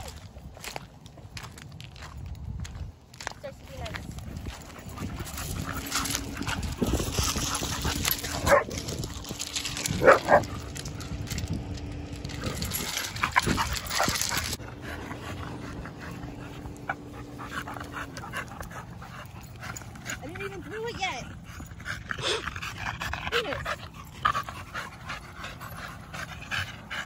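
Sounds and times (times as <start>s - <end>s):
dogs playing: 0.0s - 27.0s
dog barking: 8.4s - 8.7s, 10.0s - 10.4s.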